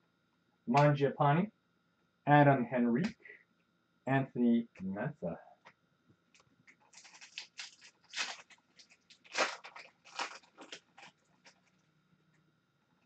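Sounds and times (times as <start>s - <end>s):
wrapper tearing and crinkling: 6.8s - 11.8s.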